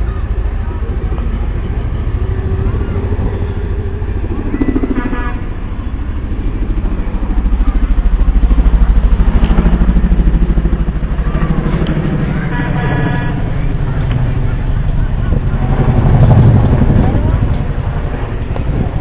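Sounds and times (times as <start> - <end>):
helicopter rotor thumps: 0.0 - 19.0.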